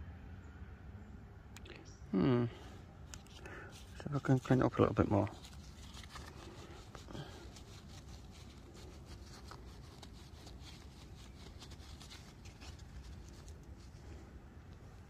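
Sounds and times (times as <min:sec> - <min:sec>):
scratching and rubbing dirt off: 0:03.0 - 0:15.0.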